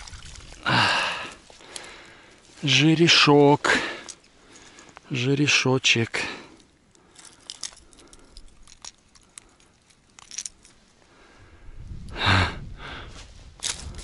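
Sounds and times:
metallic clicks and jingles: 0:06.5 - 0:10.9
rustling handling noise: 0:06.6 - 0:11.1.

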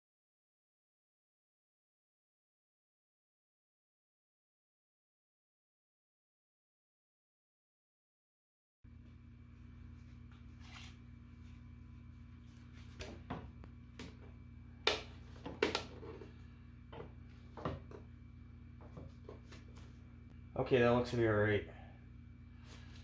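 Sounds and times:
steady low hum: 0:08.9 - 0:23.0.

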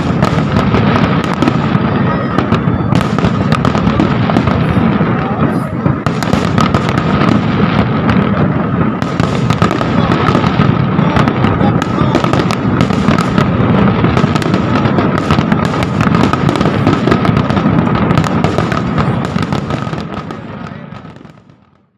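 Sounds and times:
fireworks crackling and banging: 0:00.0 - 0:21.9.

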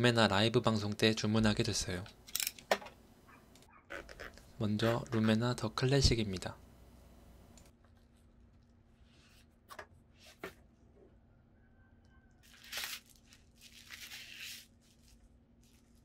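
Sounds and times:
packaging tearing and rustling: 0:12.4 - 0:16.0.

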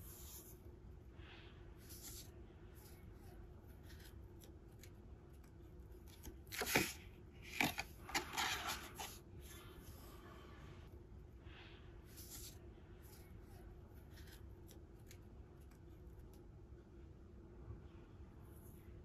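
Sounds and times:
paper cards rustling and sliding: 0:01.8 - 0:05.0, 0:05.9 - 0:09.7.

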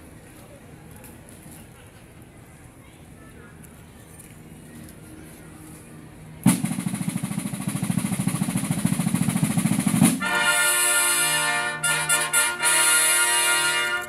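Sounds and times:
snare drum roll: 0:06.5 - 0:14.0
trumpets playing brass chord: 0:10.0 - 0:14.0.

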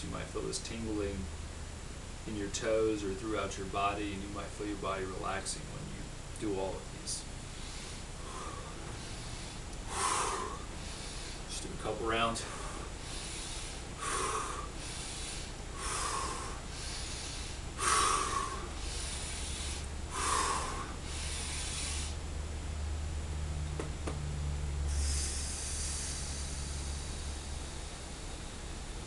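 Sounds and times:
long soft hissing breath: 0:07.4 - 0:22.4, 0:24.8 - 0:29.0
man breathing rapidly: 0:07.4 - 0:22.4, 0:24.8 - 0:29.0.

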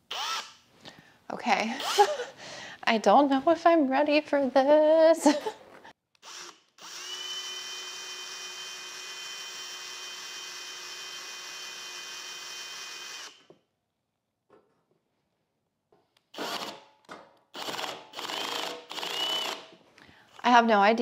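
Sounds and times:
cordless drill with hole saw: 0:00.1 - 0:00.6, 0:01.8 - 0:02.2, 0:06.2 - 0:13.5, 0:16.3 - 0:16.8, 0:17.5 - 0:19.8.

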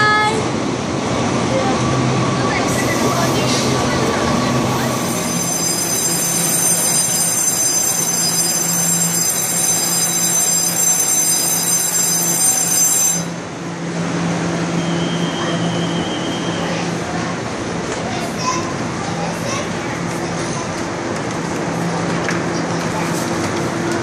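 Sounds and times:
train high-pitched whine: 0:01.3 - 0:17.5.

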